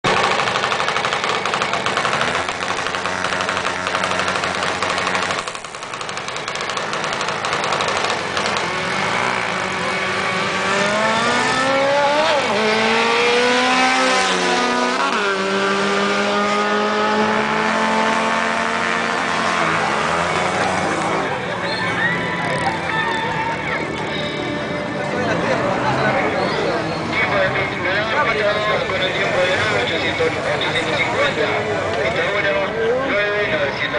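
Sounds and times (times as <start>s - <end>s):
car engines at full throttle: 0.0s - 33.9s.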